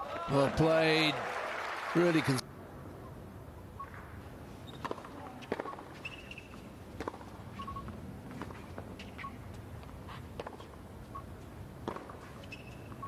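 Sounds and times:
tennis ball bouncing on court: 4.6s - 13.0s.

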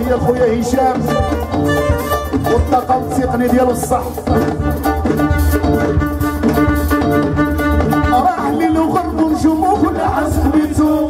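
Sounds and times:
electric guitar: 0.0s - 11.0s
keyboard: 0.0s - 11.0s
violin melody: 1.1s - 3.1s, 4.6s - 8.4s.

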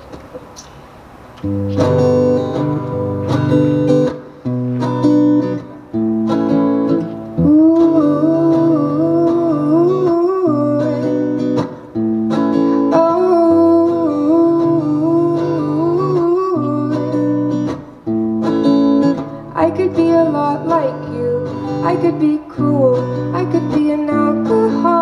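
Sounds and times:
acoustic guitar strumming: 1.4s - 25.0s
woman singing: 7.4s - 11.8s, 12.8s - 17.6s, 19.5s - 25.0s.

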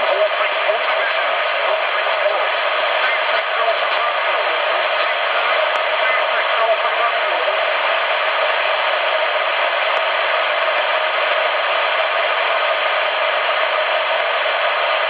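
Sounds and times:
radio static hiss: 0.0s - 15.0s.

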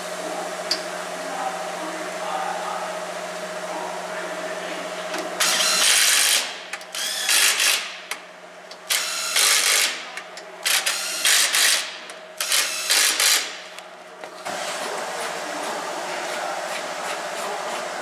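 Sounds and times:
impact wrench bursts: 5.4s - 8.2s, 8.8s - 13.7s.

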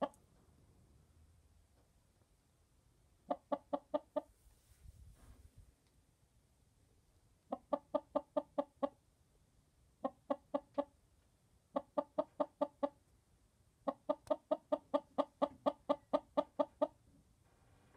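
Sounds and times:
hen clucking: 3.2s - 4.3s, 7.5s - 9.0s, 10.0s - 11.0s, 11.7s - 13.0s, 13.8s - 17.0s.

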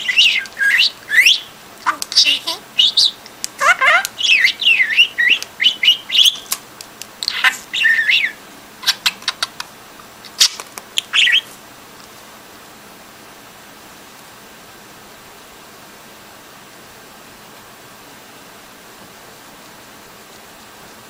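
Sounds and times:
budgerigar chattering: 0.0s - 6.5s, 7.2s - 9.6s
sharp clicks: 3.2s - 4.2s, 6.2s - 7.4s.

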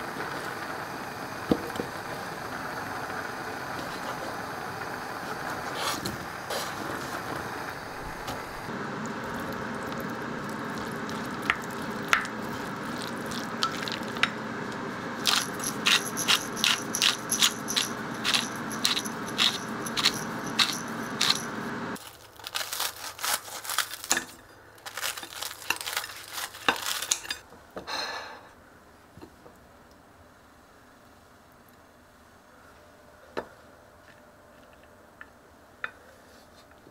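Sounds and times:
steady hum: 0.0s - 22.0s
pepper mill grinding: 10.7s - 14.4s, 15.2s - 27.4s
spoon scraping glass bowl: 15.2s - 21.6s.

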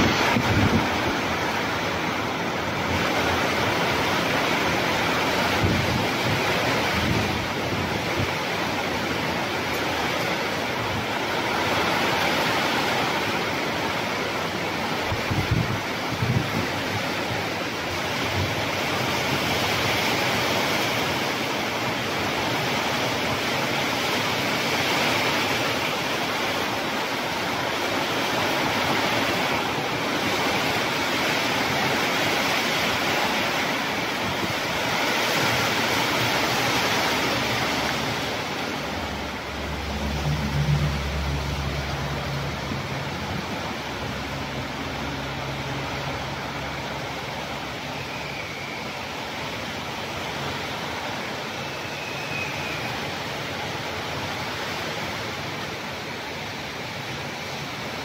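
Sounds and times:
heavy rain falling: 0.0s - 58.0s
low hum: 38.2s - 46.5s.

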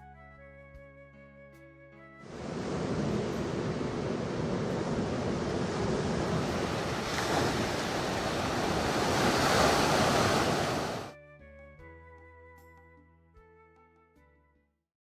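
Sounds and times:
ocean surf breaking: 2.3s - 11.1s.

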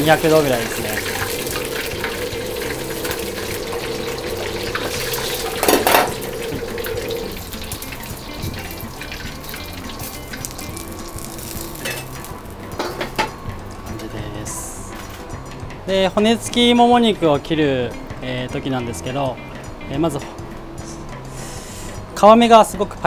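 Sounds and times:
hot oil sizzling on chicken: 0.0s - 13.4s.

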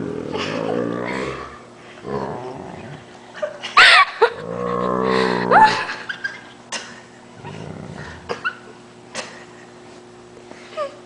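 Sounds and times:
dog moaning groan: 0.0s - 3.2s, 4.2s - 6.0s, 7.4s - 8.6s
person laughing: 0.2s - 1.5s, 3.4s - 7.0s.

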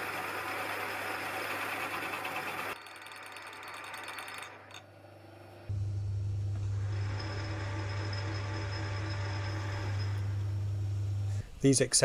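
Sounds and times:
lathe cutting steel: 0.0s - 4.9s, 6.7s - 10.7s
lathe motor hum: 0.0s - 11.3s.

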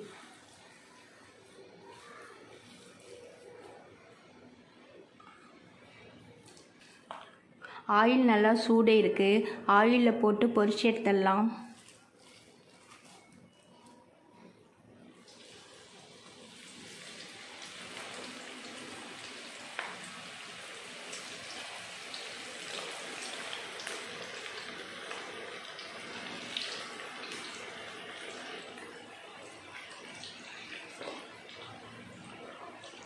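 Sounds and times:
batter sizzling in hot oil: 0.0s - 4.3s, 15.1s - 33.0s
oil popping and crackling: 11.8s - 13.3s, 15.2s - 33.0s.

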